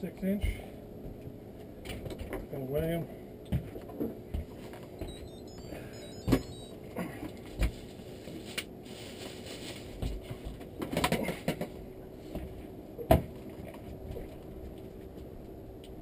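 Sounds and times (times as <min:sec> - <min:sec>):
faint steady hum: 0:05.0 - 0:10.6.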